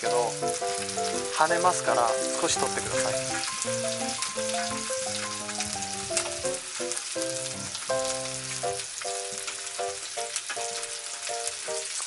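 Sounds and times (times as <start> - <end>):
slow background music: 0.0 - 9.4
chicken sizzling in a frying pan: 0.0 - 12.0.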